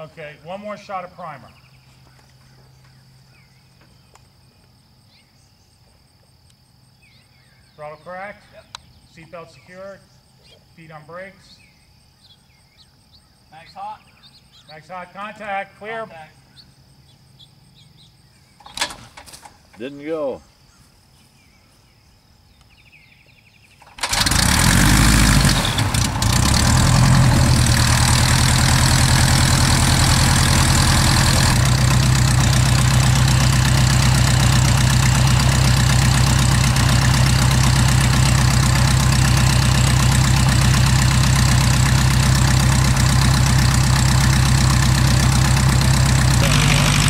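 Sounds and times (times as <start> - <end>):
aircraft engine starting and running: 23.8 - 47.0.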